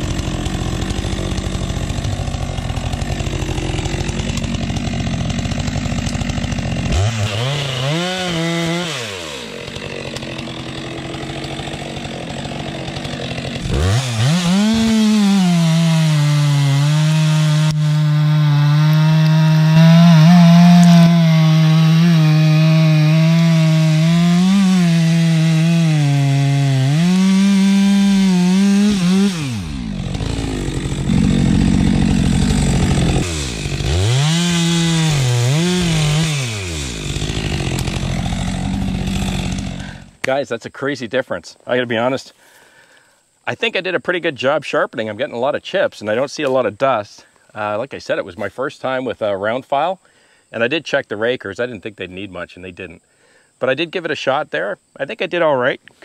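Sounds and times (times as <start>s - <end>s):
chainsaw cutting through log: 0.0s - 40.3s
chainsaw idling and revving: 0.0s - 40.3s.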